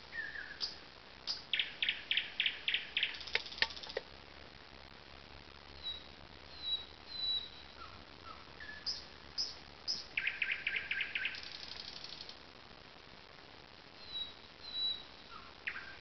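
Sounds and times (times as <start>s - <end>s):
nightingale singing: 0.0s - 4.0s, 5.7s - 12.4s, 14.0s - 16.0s.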